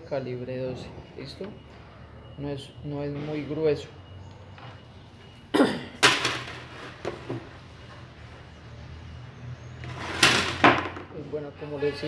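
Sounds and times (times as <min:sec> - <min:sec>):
man coughing: 0:05.5 - 0:06.0.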